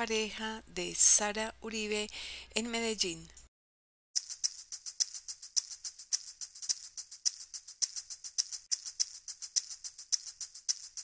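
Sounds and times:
shaker percussion music: 4.2 - 11.0.

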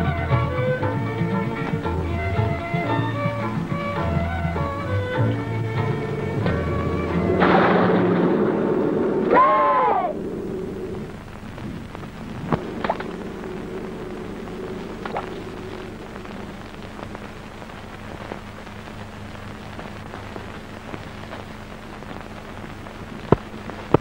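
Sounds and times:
low steady hum: 0.0 - 24.0
steady rain: 0.0 - 24.0.

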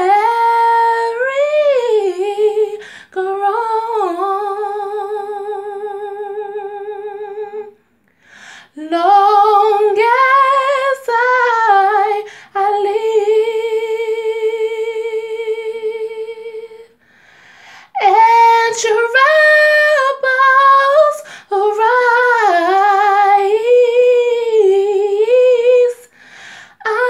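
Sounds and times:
woman singing a cappella: 0.0 - 7.8, 8.6 - 17.0, 17.8 - 27.0.

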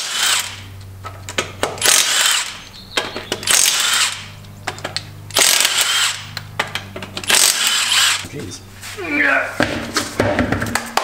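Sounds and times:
impact wrench hammering bolts: 0.0 - 8.3.

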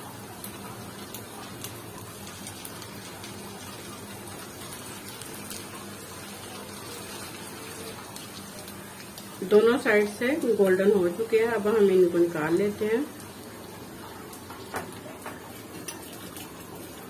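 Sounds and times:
hot oil sizzling: 0.0 - 17.0
small crackles: 0.1 - 10.6, 13.1 - 17.0.

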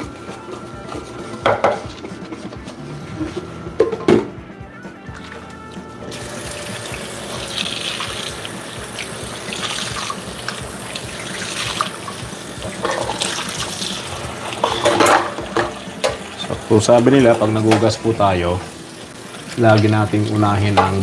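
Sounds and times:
dishes knocking: 1.4 - 1.9, 3.8 - 4.4, 12.7 - 13.4, 14.6 - 16.3
faucet running into metal sink: 6.1 - 21.0.

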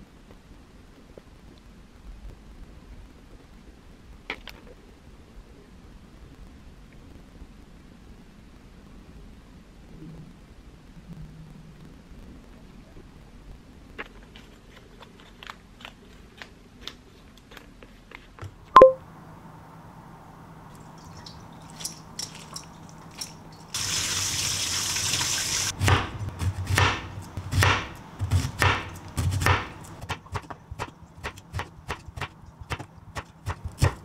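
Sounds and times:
water running: 20.7 - 25.8
knife chopping on wooden board: 25.8 - 34.0.

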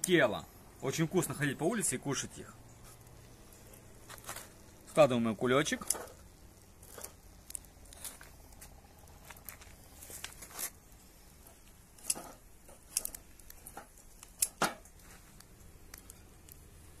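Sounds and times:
metal tongs clicking on grill: 12.0 - 14.8.

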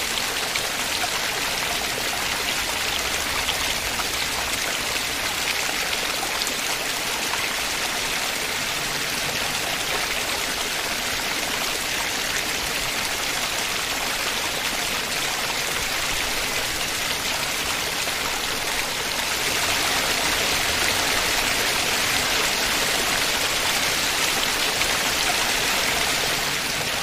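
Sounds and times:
rushing river: 0.0 - 27.0
water cascading over waterfall: 0.0 - 27.0.

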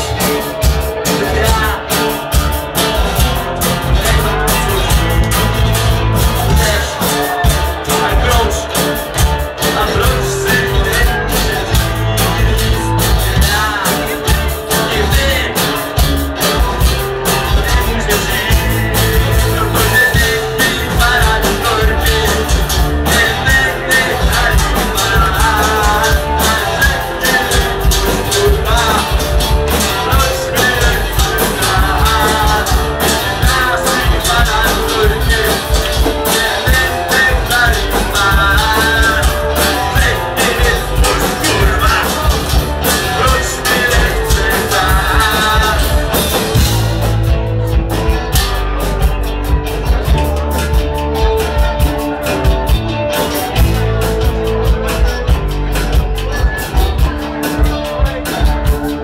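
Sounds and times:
person singing: 0.0 - 46.9
bass guitar: 0.0 - 59.0
drums: 0.0 - 59.0
electric guitar: 0.0 - 59.0.

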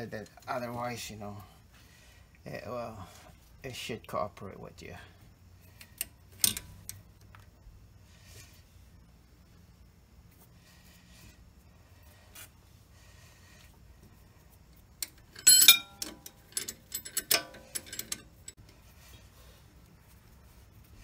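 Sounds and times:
steel tool parts clinking: 15.0 - 18.6.

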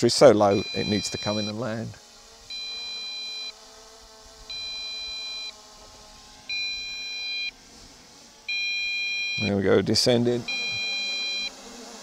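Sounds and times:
transmitter warning beeps: 0.4 - 1.6, 2.5 - 3.6, 4.5 - 5.6, 6.5 - 7.5, 8.5 - 9.6, 10.5 - 11.5.

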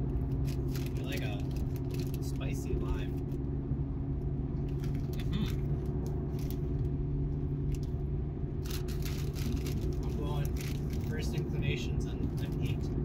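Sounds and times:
car engine and road drone: 0.0 - 13.0
person chewing crunchy snacks: 0.2 - 2.3, 4.7 - 6.8, 8.6 - 11.1.

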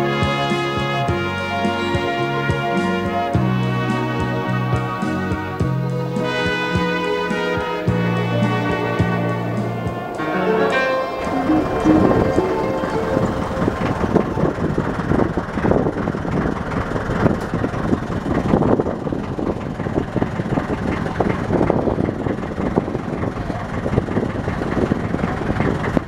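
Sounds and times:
motorboat engine running: 8.0 - 26.0
water and wind rushing: 10.9 - 16.1.

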